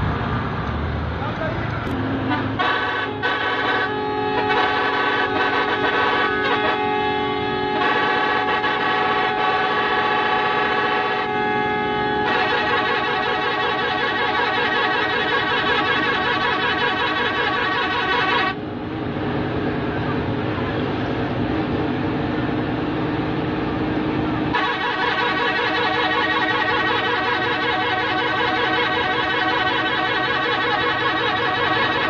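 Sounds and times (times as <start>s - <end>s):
musical vehicle horn: 2.2s - 18.6s, 24.5s - 32.0s.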